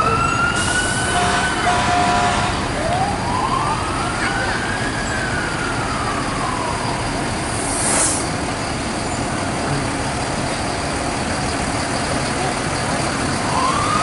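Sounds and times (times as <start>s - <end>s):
fire truck siren wailing: 0.0s - 14.0s
trucks rolling past: 0.0s - 14.0s
short hiss: 7.6s - 8.3s.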